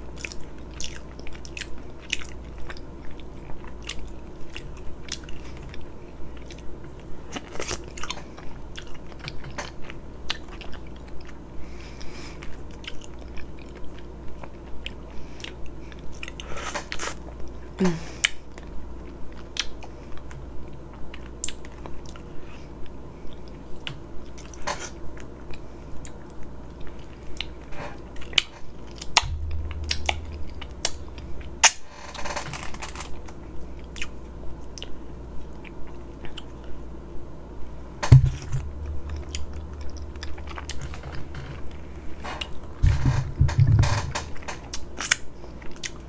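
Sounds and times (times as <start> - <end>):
wet chewing and mouth clicks: 0.1 - 11.4, 12.4 - 17.5, 33.2 - 36.8.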